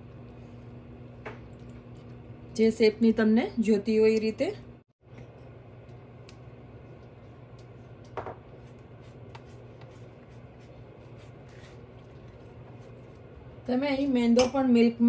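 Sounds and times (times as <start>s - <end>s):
steady low hum: 0.0s - 15.0s
pastry brush strokes: 8.5s - 13.3s.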